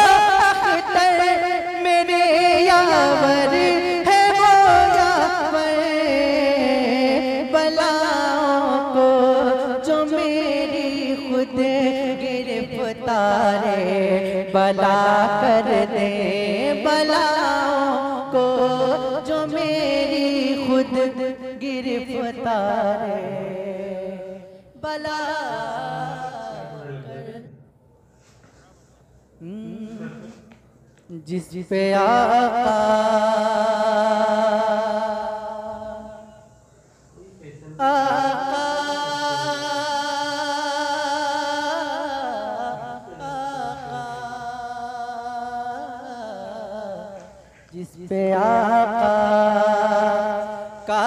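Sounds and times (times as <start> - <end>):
man singing long note: 0.0 - 27.6, 37.8 - 51.0.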